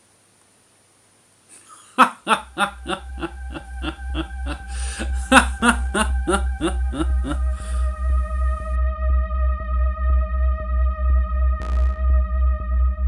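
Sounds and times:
man laughing in short bursts: 1.6s - 7.8s.

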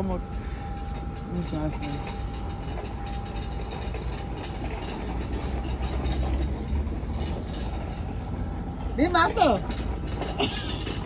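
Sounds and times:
faint steady hum: 0.0s - 6.2s
urban background rumble and hiss: 0.0s - 11.0s.

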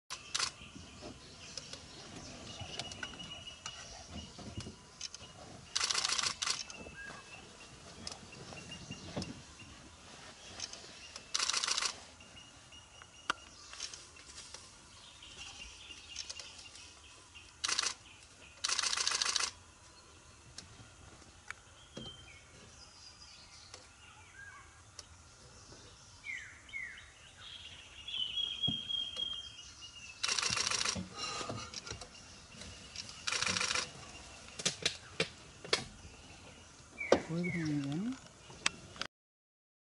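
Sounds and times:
birds chirping: 0.1s - 39.1s
camera shutters clicking rapidly: 5.8s - 6.7s, 11.3s - 12.0s, 17.6s - 18.0s, 18.6s - 19.5s, 30.2s - 31.0s, 33.2s - 33.9s.

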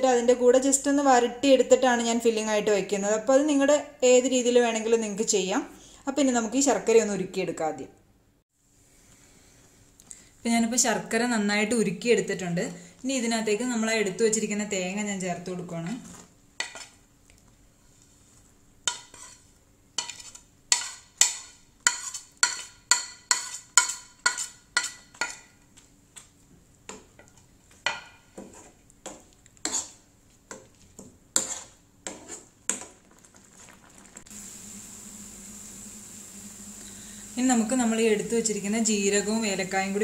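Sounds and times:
spoon scraping a pan: 15.8s - 17.0s, 18.9s - 25.6s, 26.9s - 33.7s
mixture sizzling in a pan: 17.7s - 26.3s, 26.9s - 40.0s.

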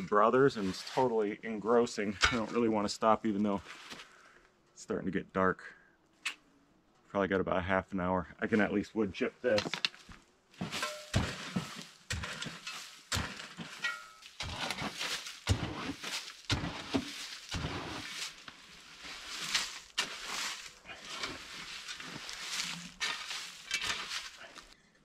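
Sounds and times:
shovel scooping wood chips: 0.0s - 2.6s, 10.6s - 24.8s
wood chips landing on ground: 9.5s - 24.8s.

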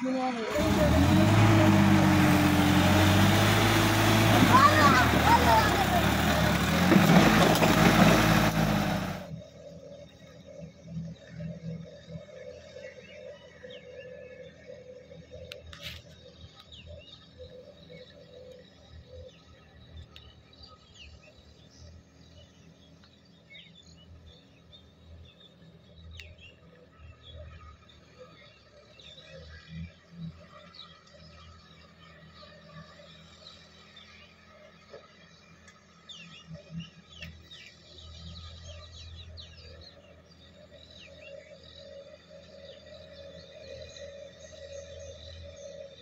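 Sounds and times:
distant tractor engine humming: 0.0s - 20.5s
distant tractor engine drone: 0.0s - 46.0s
birds chirping: 0.6s - 9.3s, 16.4s - 46.0s.

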